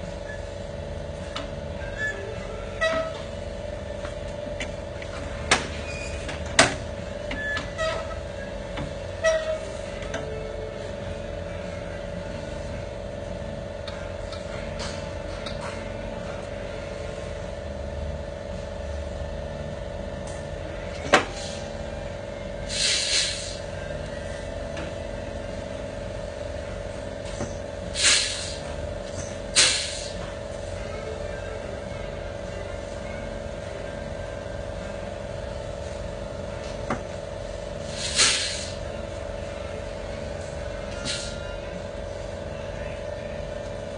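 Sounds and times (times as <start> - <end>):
machine hum: 0.0 - 43.9
short bursts of hissing: 22.7 - 23.6, 28.0 - 28.6, 29.6 - 30.1, 37.9 - 38.8.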